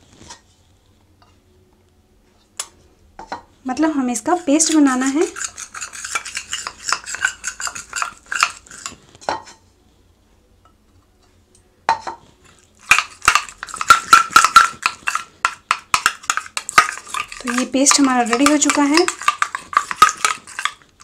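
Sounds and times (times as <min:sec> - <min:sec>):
spoon scraping a metal bowl: 0:03.2 - 0:09.6, 0:12.0 - 0:21.0.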